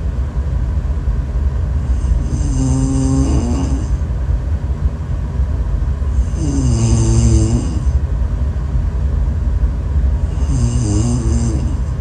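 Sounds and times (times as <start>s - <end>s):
steady low rumble: 0.0s - 12.0s
woman snoring: 1.9s - 4.0s, 6.2s - 8.0s, 10.2s - 12.0s.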